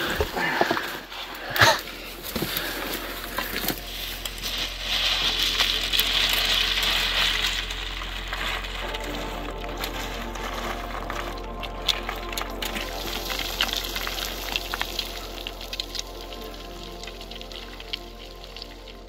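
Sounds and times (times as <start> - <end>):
footsteps crunching: 0.0 - 19.0
loose rocks clinking: 0.0 - 19.0.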